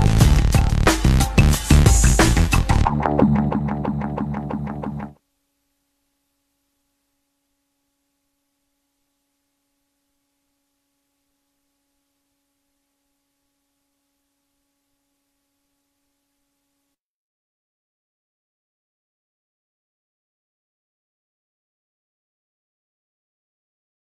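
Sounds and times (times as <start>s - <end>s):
music: 0.0s - 5.2s
faint steady hum: 3.5s - 17.0s.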